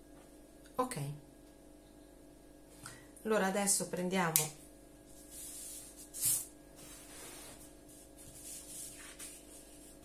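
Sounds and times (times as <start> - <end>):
paper sliding across tabletop: 5.2 - 10.0.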